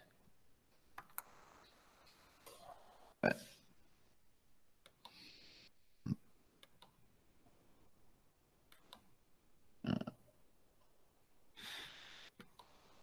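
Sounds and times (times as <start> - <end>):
breathy hiss: 11.6 - 12.4.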